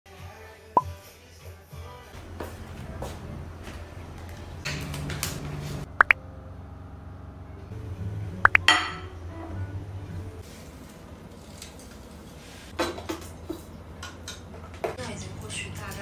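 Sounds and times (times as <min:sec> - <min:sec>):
tableware clinking on table: 0:08.6 - 0:09.1.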